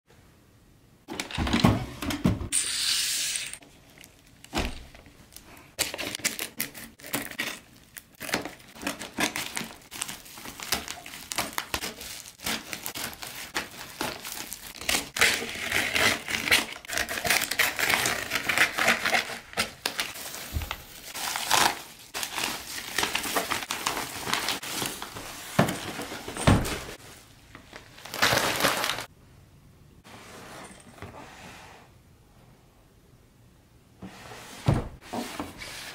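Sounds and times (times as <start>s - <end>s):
paper crinkling and tearing: 3.5s - 27.0s, 27.7s - 29.1s.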